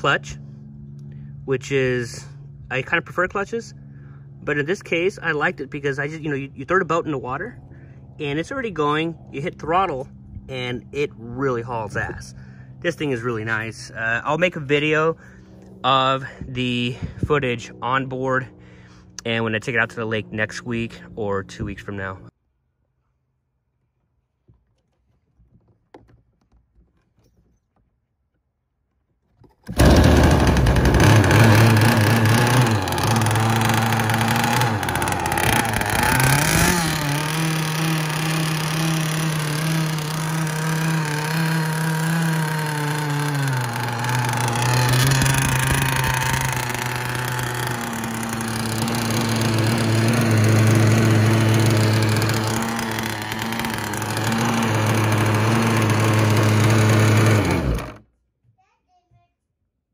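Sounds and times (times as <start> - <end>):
small two-stroke engine revving: 29.7 - 58.0.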